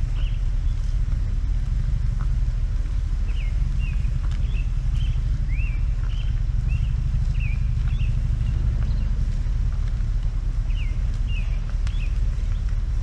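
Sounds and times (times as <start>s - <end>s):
bird chirping: 0.0s - 1.0s, 3.2s - 9.3s, 10.6s - 12.9s
vehicle engine rumbling: 0.0s - 13.0s.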